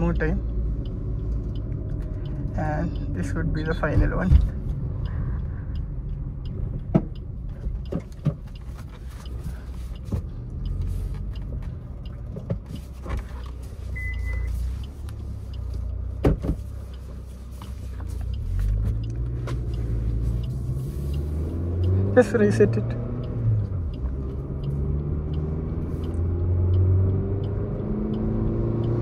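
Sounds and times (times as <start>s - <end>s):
car engine rumble in cabin: 0.0s - 29.0s
short high beep: 13.9s - 14.6s.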